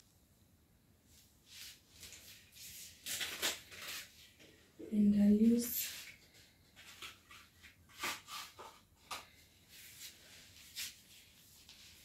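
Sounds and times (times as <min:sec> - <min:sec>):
paper packet rustling: 0:01.9 - 0:04.5, 0:05.7 - 0:09.3.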